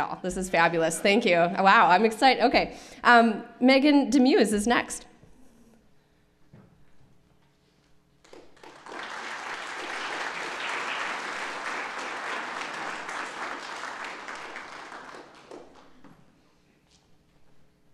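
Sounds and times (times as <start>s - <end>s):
audience applauding: 8.2s - 16.2s.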